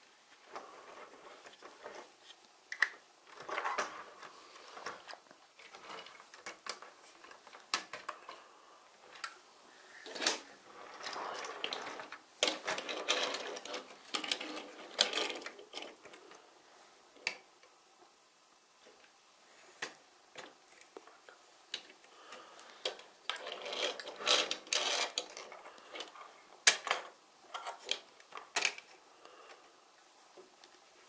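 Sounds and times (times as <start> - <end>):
plastic bricks clicking and rattling: 10.1 - 16.4, 22.8 - 28.9.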